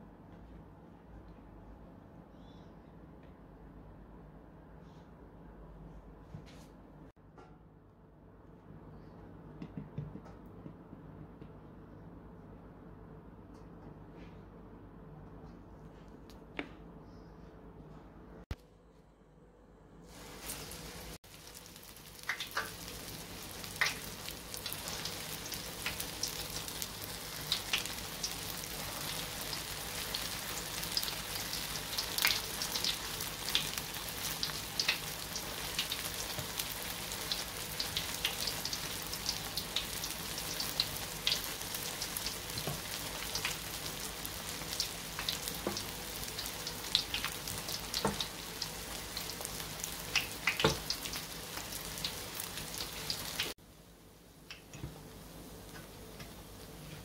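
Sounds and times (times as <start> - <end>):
pancakes frying in hot oil: 20.1 - 53.6.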